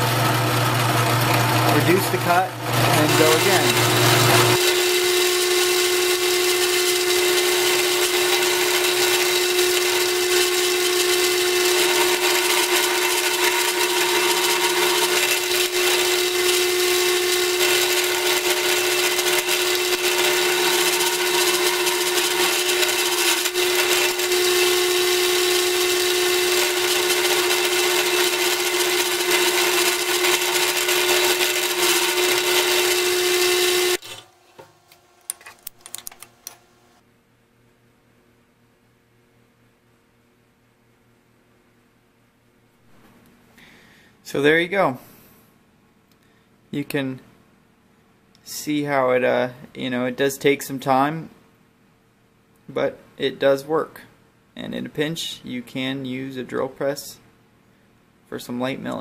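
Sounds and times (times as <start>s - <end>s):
drill press motor whine: 0.0s - 34.7s
mill cutting steel: 0.0s - 34.7s.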